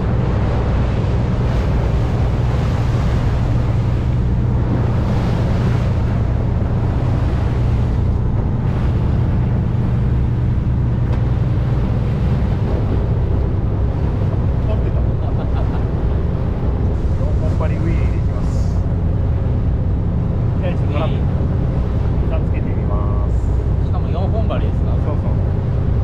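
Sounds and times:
wind on microphone: 0.0 - 24.1
boat engine humming: 0.0 - 26.0
water rushing along hull: 0.0 - 26.0.

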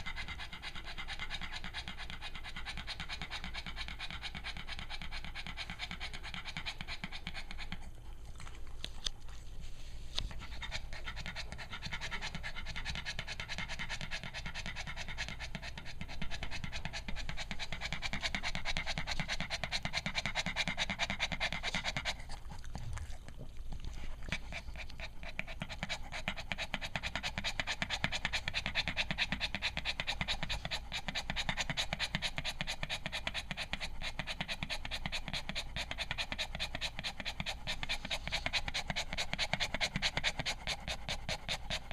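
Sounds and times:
dog panting rapidly: 0.0 - 41.9.

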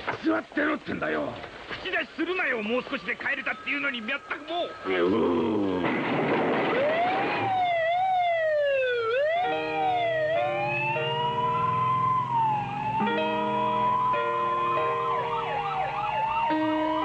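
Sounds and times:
police siren wailing: 2.8 - 17.0
music held chords: 9.1 - 17.0.

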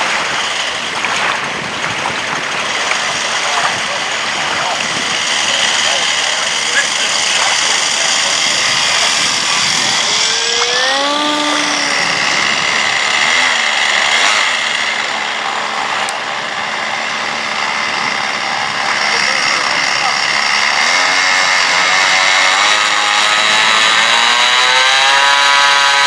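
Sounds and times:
model plane motor whining: 0.0 - 26.0.

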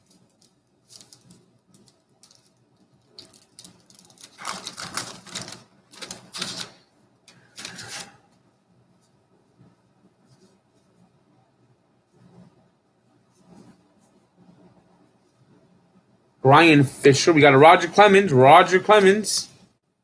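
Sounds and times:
card packs rustling: 3.1 - 8.2.

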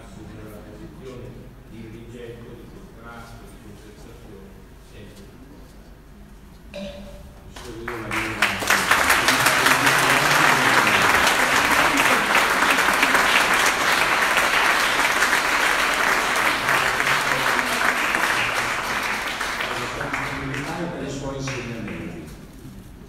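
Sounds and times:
audience applauding: 7.6 - 22.4.

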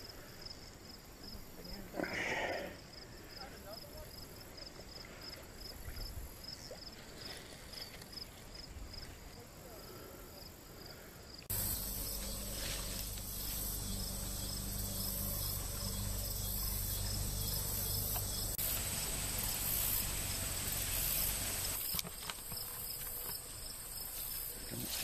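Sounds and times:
insects trilling: 0.0 - 25.0
low steady hum: 11.5 - 21.8.

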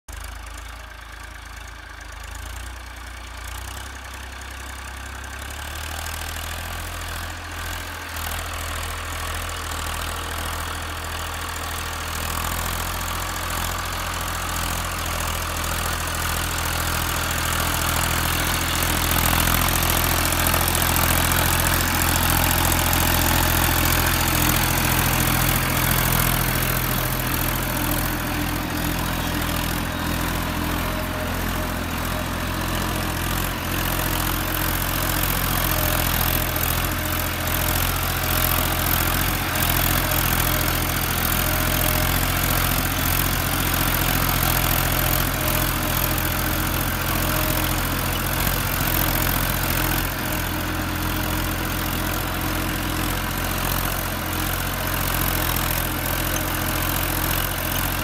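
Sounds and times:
tractor diesel engine running: 0.1 - 58.0.

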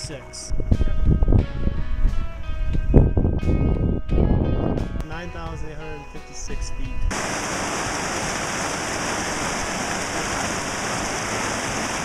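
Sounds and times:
stream rushing over rocks: 7.1 - 12.0.

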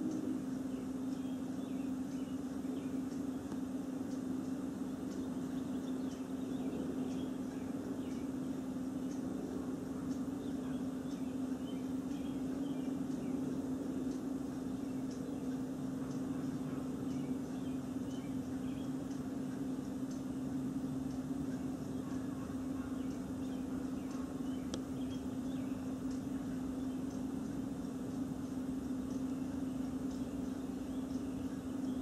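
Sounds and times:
faint bird chirps: 0.0 - 32.0
low hum with soft hiss: 0.0 - 32.0.

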